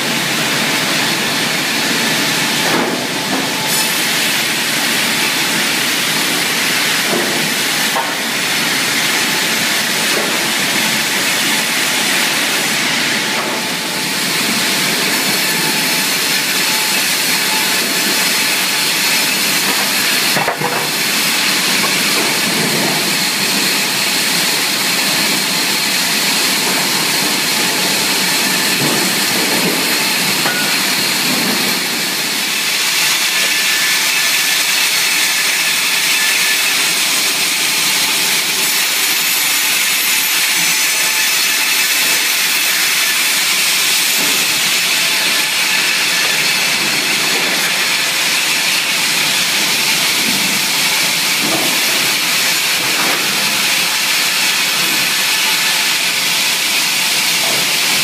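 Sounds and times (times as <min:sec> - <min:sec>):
sawmill machinery running: 0:00.0 - 0:58.0.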